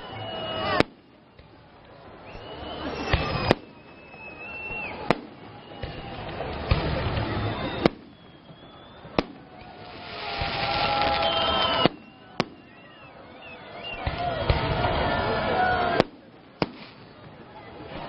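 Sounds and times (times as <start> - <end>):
fireworks hiss: 0.0 - 12.8, 16.0 - 17.4
fireworks bangs: 0.0 - 18.0.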